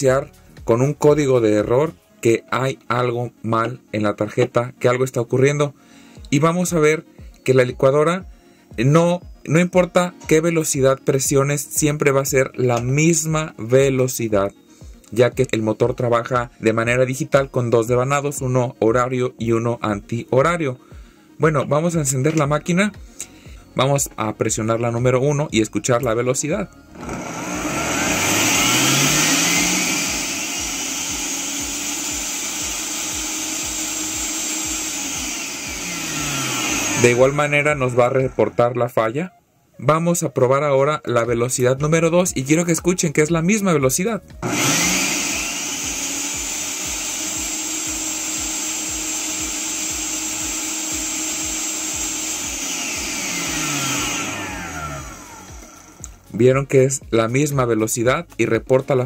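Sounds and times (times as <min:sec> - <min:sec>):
blender motor whining: 0:26.8 - 0:38.7, 0:44.3 - 0:56.3.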